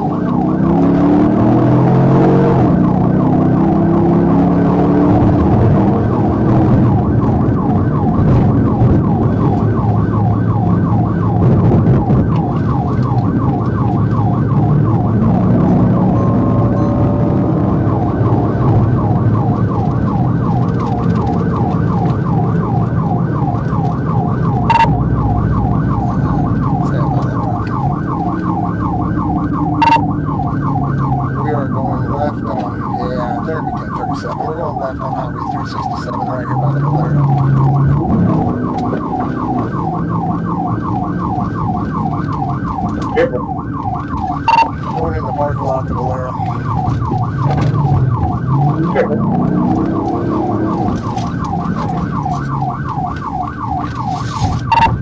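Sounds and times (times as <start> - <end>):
car engine and road noise: 0.0 - 55.0
police siren yelping: 0.0 - 55.0.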